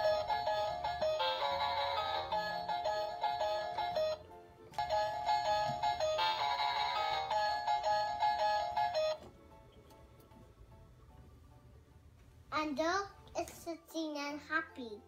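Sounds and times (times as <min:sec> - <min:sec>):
electronic toy tune: 0:00.0 - 0:04.2, 0:04.8 - 0:09.3.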